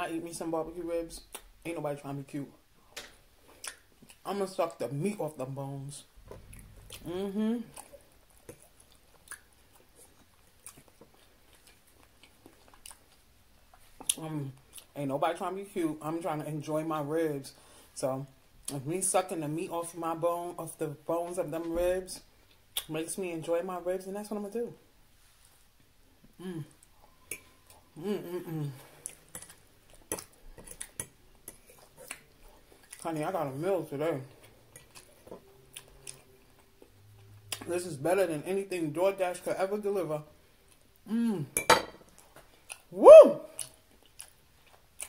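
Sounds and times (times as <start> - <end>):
faint chewing: 6.2 - 15.0, 26.2 - 33.3, 34.2 - 37.8, 42.0 - 42.9, 43.5 - 45.0
person humming while chewing: 6.8 - 8.6, 26.2 - 29.5, 41.0 - 41.6.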